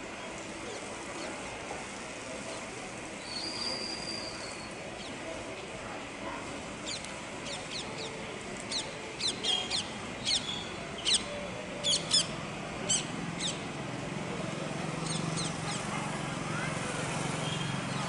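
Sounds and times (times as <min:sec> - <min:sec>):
birds chirping: 0:08.7 - 0:13.6, 0:15.0 - 0:15.9.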